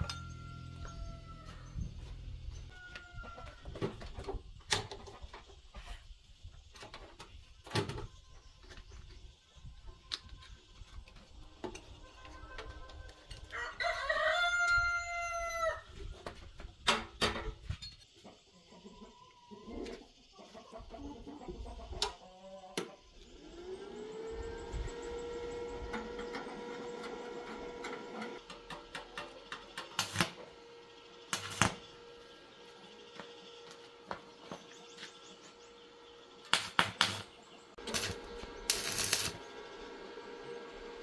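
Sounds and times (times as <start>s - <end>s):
rooster crowing: 0.0s - 3.8s, 13.5s - 15.9s.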